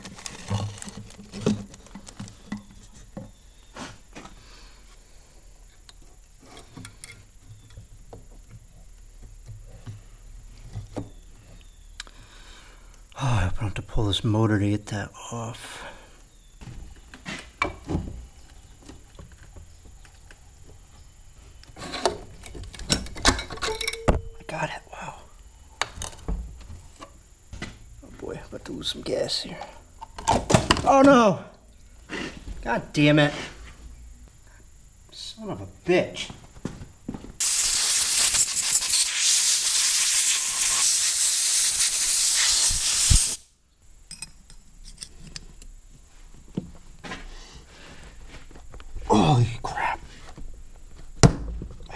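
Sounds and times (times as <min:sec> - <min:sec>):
aerosol spray hissing: 0:37.4 - 0:43.5.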